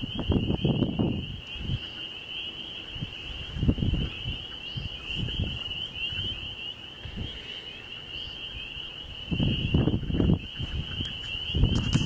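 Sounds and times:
wind rumble on microphone: 0:00.0 - 0:02.0, 0:02.8 - 0:07.5, 0:08.3 - 0:12.0
night insects trilling: 0:00.0 - 0:12.0
microphone handling noise: 0:10.6 - 0:12.0.

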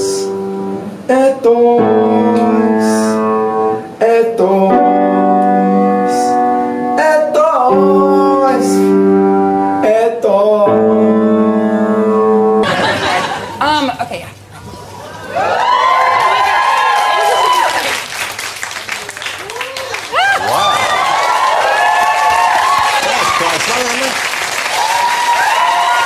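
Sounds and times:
man singing: 0:00.0 - 0:00.4, 0:01.0 - 0:09.0, 0:09.8 - 0:12.4
grand piano: 0:00.0 - 0:13.6.

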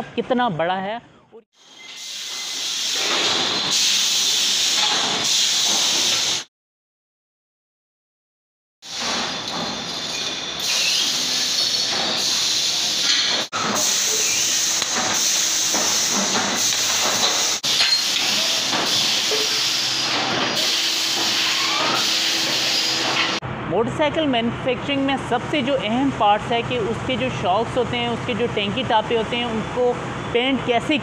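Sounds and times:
machinery hissing: 0:01.6 - 0:06.5, 0:08.9 - 0:23.4
metal clanks and knocks: 0:09.0 - 0:11.0.

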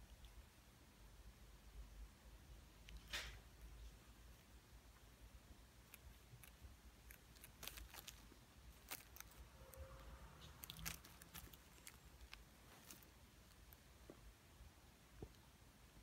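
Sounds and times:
plastic bottle crinkling: 0:07.1 - 0:09.4, 0:10.4 - 0:13.1.

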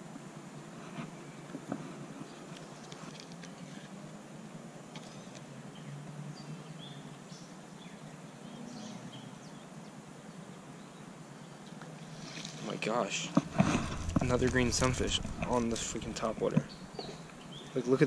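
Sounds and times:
low rumble: 0:13.4 - 0:17.8
bird chirping: 0:13.5 - 0:18.0.

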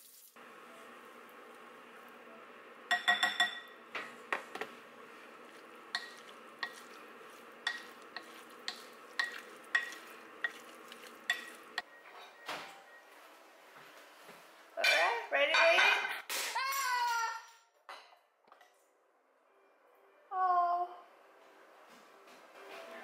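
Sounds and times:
utensil clinking against cookware: 0:02.9 - 0:04.7, 0:05.4 - 0:12.4.

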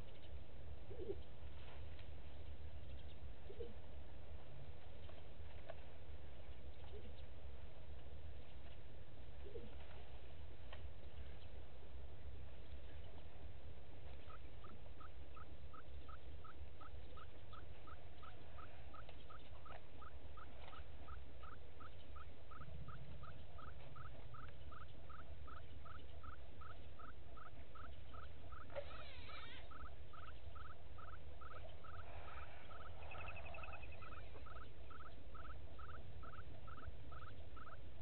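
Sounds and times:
constant low hum: 0:00.0 - 0:38.0
animal calling in rising notes: 0:26.2 - 0:37.8.

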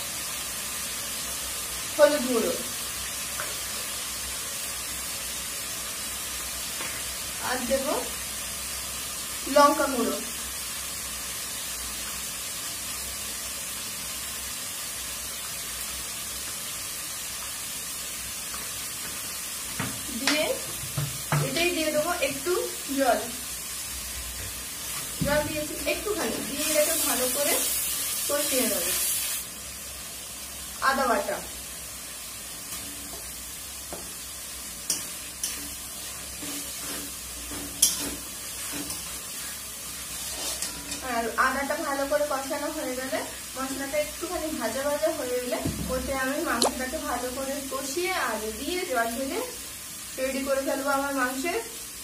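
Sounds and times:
food sizzling in a pan: 0:00.0 - 0:52.0
paste frying in oil: 0:00.0 - 0:52.0
metal spatula clinking: 0:37.5 - 0:39.1.

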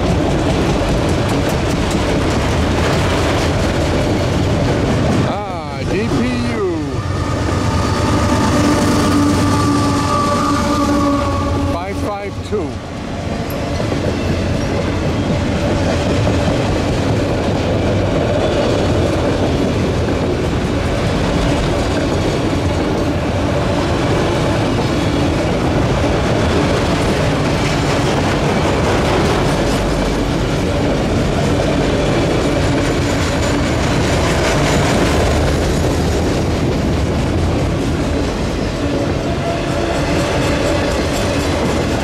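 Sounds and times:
wheels clicking over rail joints: 0:00.0 - 0:05.5
train wheels rolling on rails: 0:00.0 - 0:42.0.

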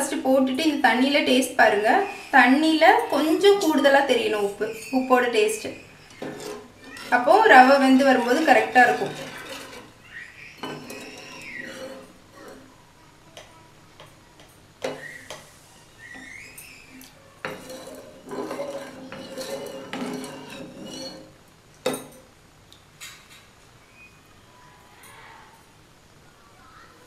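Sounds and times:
ladle stirring and scraping in pan: 0:01.7 - 0:12.8, 0:14.8 - 0:21.4
high squeaks: 0:01.8 - 0:12.7, 0:14.9 - 0:21.3.

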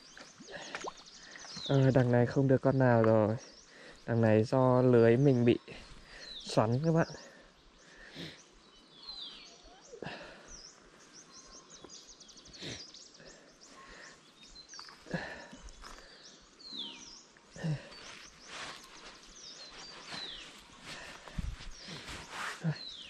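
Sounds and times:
water dripping and splashing: 0:00.2 - 0:02.1
birds calling with falling whistles: 0:05.8 - 0:23.0.

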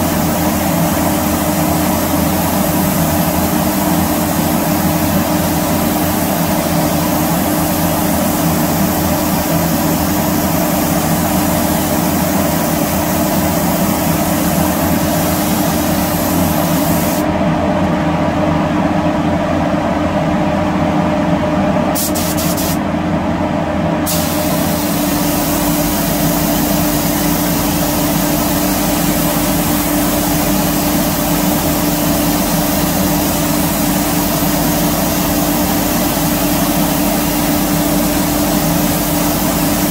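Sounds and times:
spray gun hissing: 0:00.0 - 0:17.3, 0:22.0 - 0:22.8, 0:24.1 - 0:39.9.

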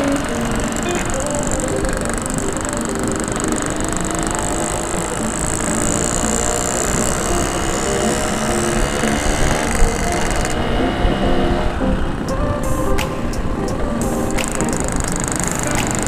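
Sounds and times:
two-stroke motorcycle engine running: 0:00.0 - 0:10.8.

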